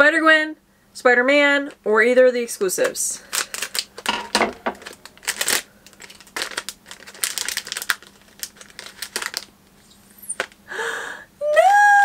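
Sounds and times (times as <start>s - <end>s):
foil packet crinkling: 2.8s - 10.6s.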